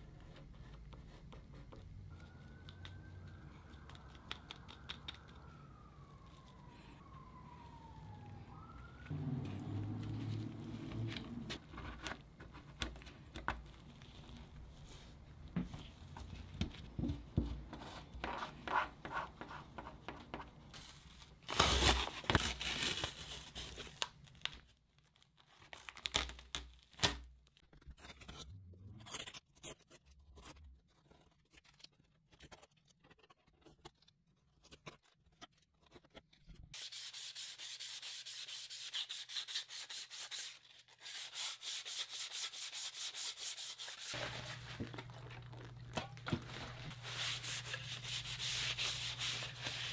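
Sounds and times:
masking tape pulled off: 21.4s - 24.1s
hand sanding plastic: 36.8s - 45.0s, 46.8s - 49.9s.

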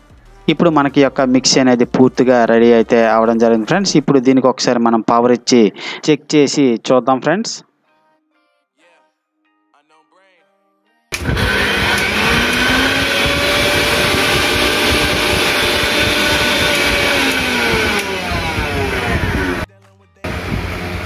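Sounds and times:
mixer grinder motor whining: 11.1s - 21.0s.

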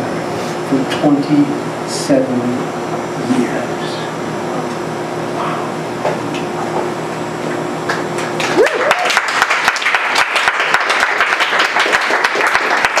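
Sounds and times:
room hum: 0.0s - 13.0s
faint murmurs: 3.7s - 6.8s
audience applause: 7.9s - 13.0s
whoop: 8.4s - 9.4s.

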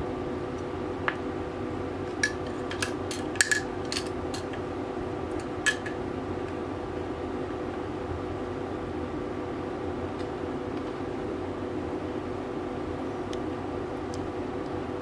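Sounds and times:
steady background hum: 0.0s - 15.0s
small parts clicking and clinking: 2.2s - 4.6s.

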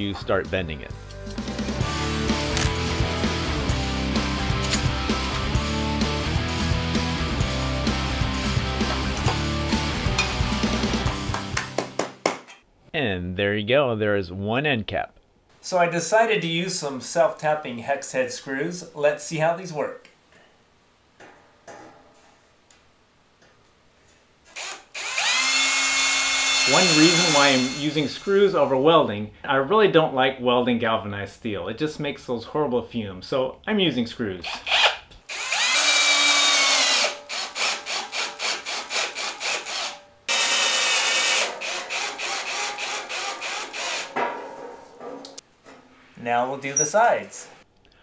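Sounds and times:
cordless drill whining: 24.5s - 28.0s, 34.6s - 44.1s.

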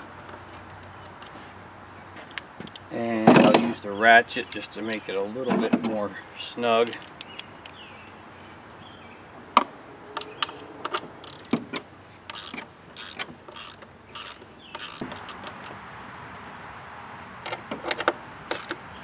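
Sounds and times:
ratchet wrench clicking: 11.2s - 11.6s, 12.3s - 15.4s.

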